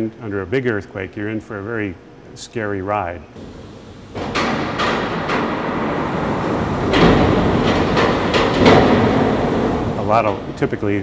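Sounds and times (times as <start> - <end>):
sharp bangs and knocks: 3.4 - 10.8
steel frame rattling rumble: 3.4 - 11.0.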